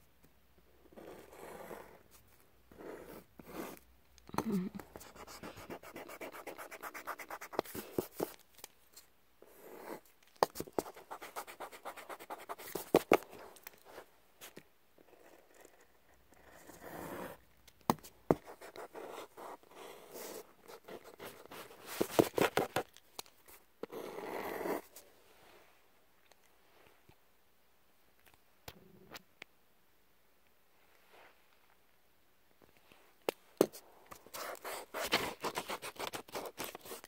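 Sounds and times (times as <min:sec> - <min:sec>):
pencil scratching on paper: 0:01.0 - 0:02.0, 0:02.7 - 0:03.8, 0:04.9 - 0:08.3, 0:10.6 - 0:14.0, 0:15.2 - 0:17.4, 0:18.3 - 0:22.8, 0:34.2 - 0:37.0.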